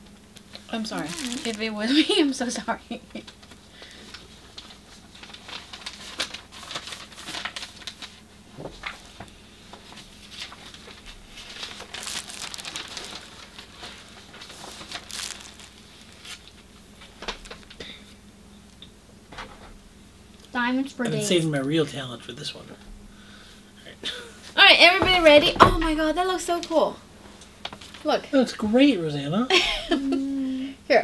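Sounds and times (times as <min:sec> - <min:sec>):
paper rustling and crinkling: 0:00.8 - 0:02.1, 0:03.2 - 0:17.8, 0:27.6 - 0:28.1.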